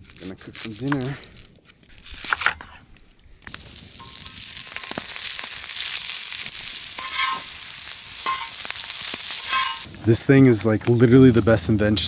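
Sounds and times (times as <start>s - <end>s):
onions sizzling on a griddle: 3.5s - 12.0s
spatula scraping metal: 6.9s - 7.6s, 8.2s - 8.7s, 9.3s - 9.9s.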